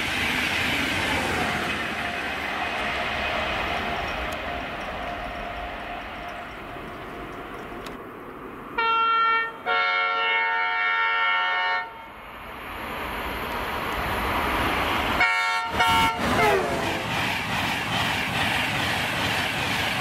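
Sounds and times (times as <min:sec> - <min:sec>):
train rumble: 0:00.0 - 0:10.4, 0:12.0 - 0:20.0
train horn blasts: 0:08.8 - 0:12.2, 0:15.2 - 0:16.9.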